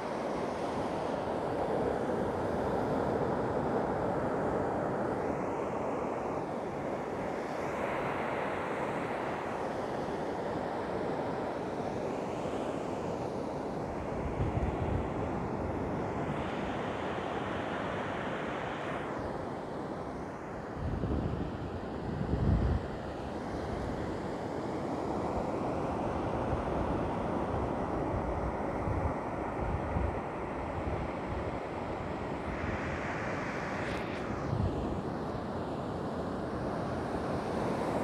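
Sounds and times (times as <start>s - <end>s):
surf washing up a beach: 0.0s - 38.0s
wind buffeting the microphone: 14.0s - 16.8s, 20.7s - 24.1s.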